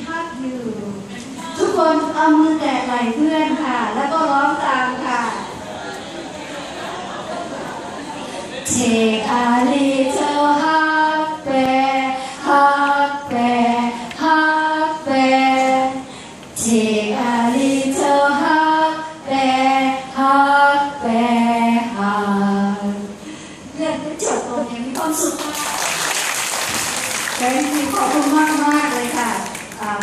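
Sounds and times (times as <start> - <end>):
women singing into a microphone: 8.7 - 23.2.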